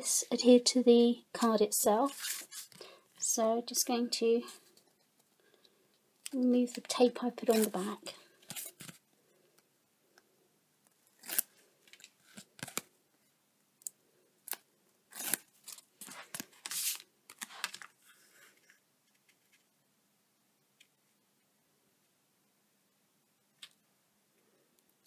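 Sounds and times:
paper rustling: 0:02.1 - 0:02.8, 0:06.7 - 0:09.0, 0:15.2 - 0:19.7
tape liner peeling: 0:11.0 - 0:12.9, 0:14.4 - 0:17.8.

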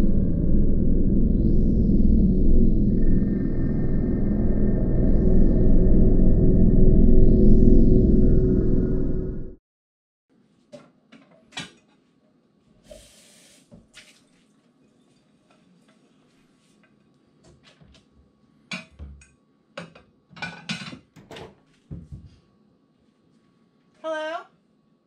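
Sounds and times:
dishes and cutlery clinking: 0:19.8 - 0:21.4.

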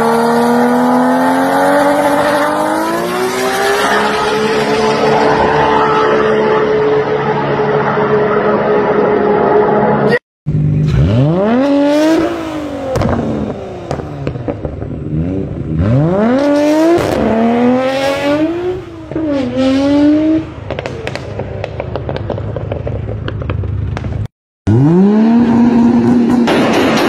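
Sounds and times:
car engine revving hard: 0:00.0 - 0:05.2, 0:10.8 - 0:20.5, 0:24.7 - 0:26.5
exhaust pops and crackles: 0:12.9 - 0:15.1, 0:20.6 - 0:24.3.

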